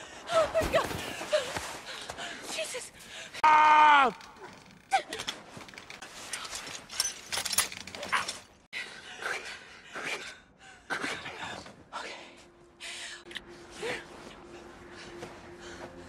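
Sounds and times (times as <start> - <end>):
people gasping and groaning: 8.0 - 16.0
scuffling in snow: 13.7 - 15.9.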